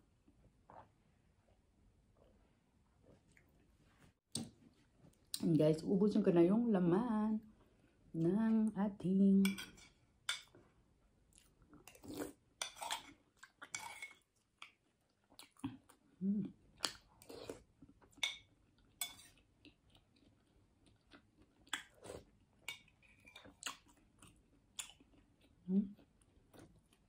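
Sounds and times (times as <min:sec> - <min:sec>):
chewing and wet mouth noises: 0:11.3 - 0:27.0.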